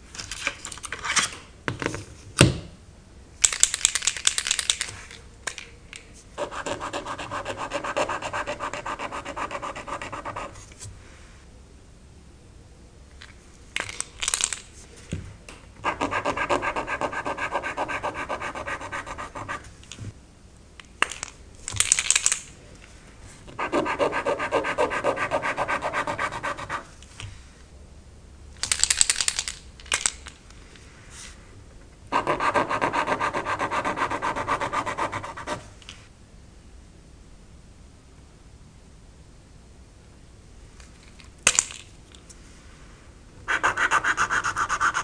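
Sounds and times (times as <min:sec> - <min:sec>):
pens scribbling on paper: 0:23.6 - 0:26.9, 0:43.5 - 0:45.0.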